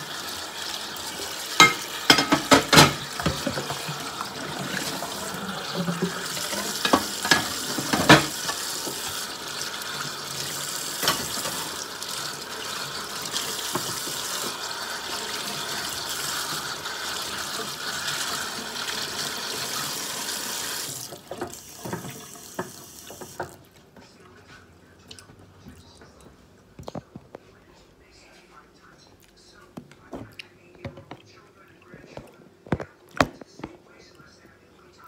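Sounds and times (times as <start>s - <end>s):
dishes clattering: 1.5s - 9.0s, 11.0s - 11.8s
ceramic plate knocking on sink: 1.6s - 3.9s.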